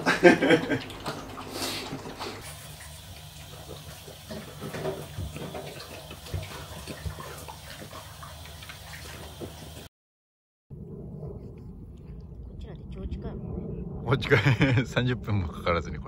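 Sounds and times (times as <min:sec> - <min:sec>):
dog eating from bowl: 0:00.8 - 0:08.4
low steady hum: 0:10.8 - 0:16.0.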